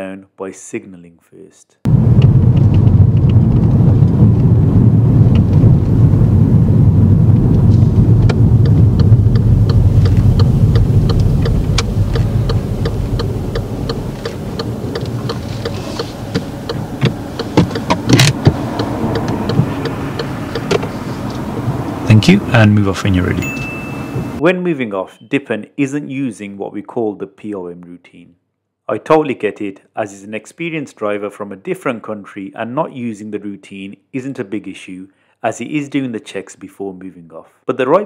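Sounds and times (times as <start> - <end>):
car engine and road rumble: 1.9 - 24.4
sharp knocks: 16.4 - 20.9.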